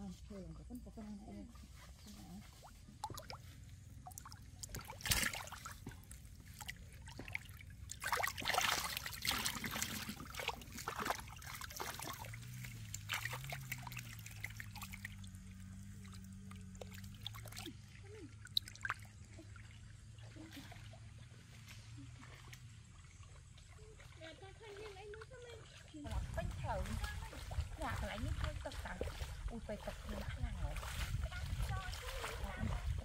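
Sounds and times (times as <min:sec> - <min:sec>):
large fish splashing in water: 0:02.9 - 0:19.7.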